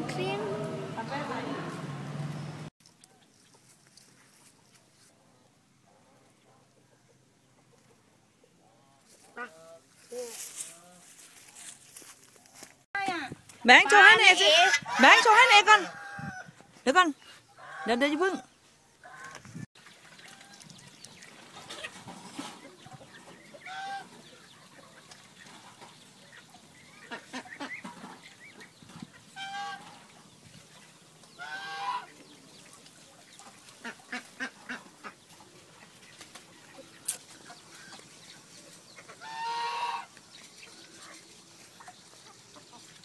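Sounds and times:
ducks chickens and geese calling: 0:05.9 - 0:11.3, 0:13.6 - 0:16.7, 0:17.5 - 0:43.0.

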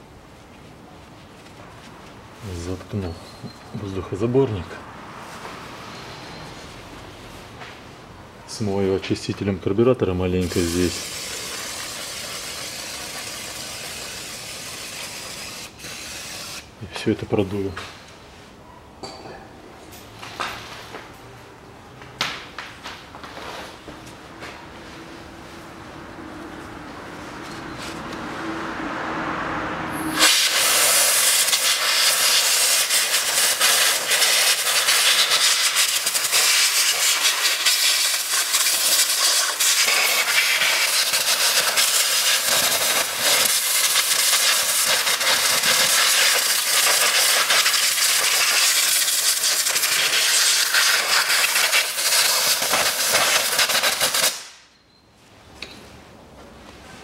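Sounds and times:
compressed air hissing: 0:10.4 - 0:16.8, 0:30.0 - 0:54.6.

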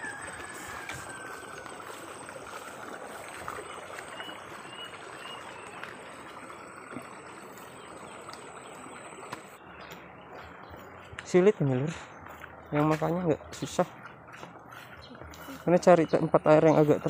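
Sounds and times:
water rushing: 0:00.0 - 0:09.6.

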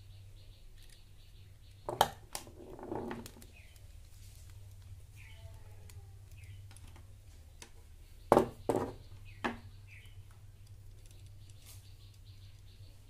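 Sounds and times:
low steady hum: 0:00.0 - 0:13.0
sharp knocks on wooden table: 0:08.3 - 0:09.6.

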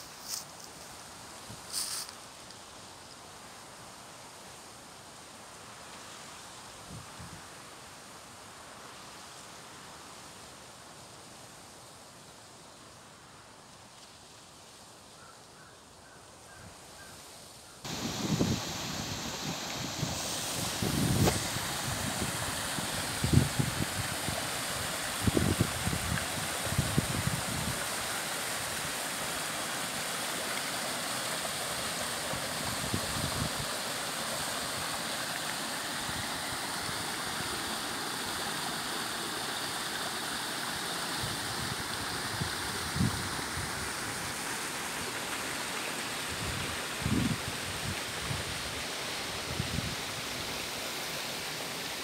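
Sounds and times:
stream rushing over boulders: 0:17.8 - 0:52.0
wind thumps on microphone: 0:17.9 - 0:22.5.

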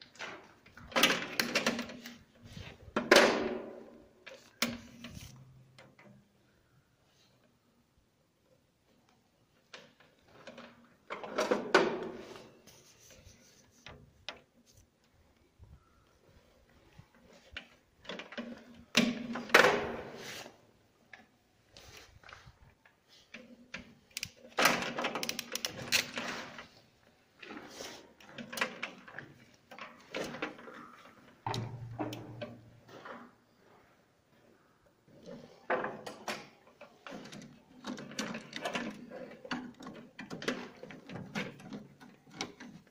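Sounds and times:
hands working wires rustling clicking: 0:16.4 - 0:33.8, 0:34.5 - 0:42.9.

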